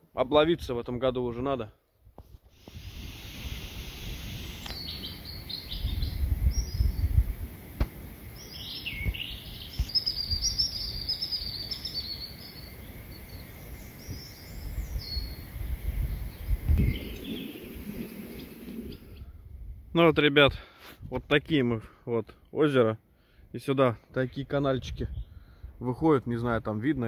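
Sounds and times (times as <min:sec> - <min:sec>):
wind rumble on microphone: 0:02.1 - 0:11.1, 0:13.7 - 0:21.3, 0:24.7 - 0:25.8
songbird warbling: 0:04.3 - 0:07.2, 0:08.4 - 0:19.3.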